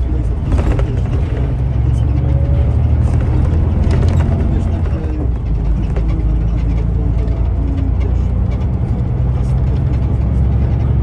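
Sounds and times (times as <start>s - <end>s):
coach engine and road drone: 0.0s - 11.0s.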